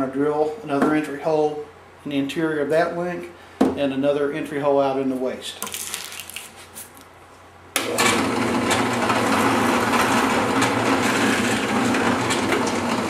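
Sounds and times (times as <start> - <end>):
drill press boring wood: 7.8 - 13.0.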